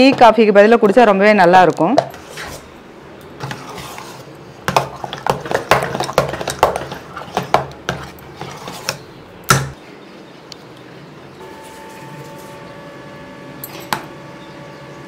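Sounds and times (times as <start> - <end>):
spoon scraping a saucepan: 3.4 - 9.1.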